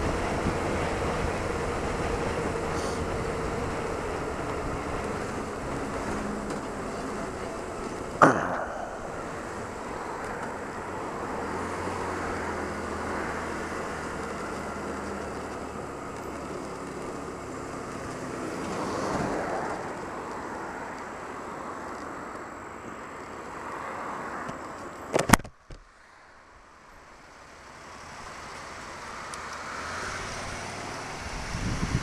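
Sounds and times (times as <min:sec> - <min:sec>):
wind noise on microphone: 0:00.0 - 0:06.3, 0:30.2 - 0:32.0.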